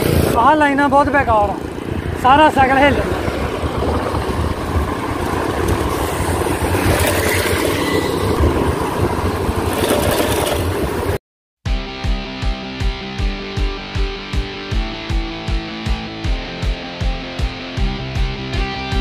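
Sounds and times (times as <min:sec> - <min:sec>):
bicycle rumbling over road: 0:00.0 - 0:11.2
wind noise: 0:00.0 - 0:11.2.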